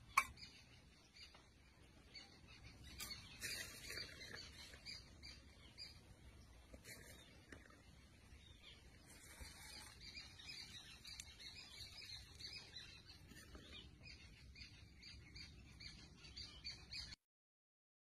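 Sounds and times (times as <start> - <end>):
faint birds chirping: 0.0 - 17.2.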